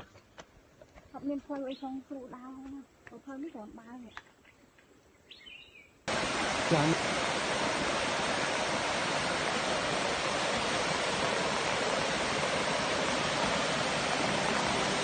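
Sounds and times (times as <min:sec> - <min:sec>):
stream rushing over rocks: 0:06.1 - 0:15.0.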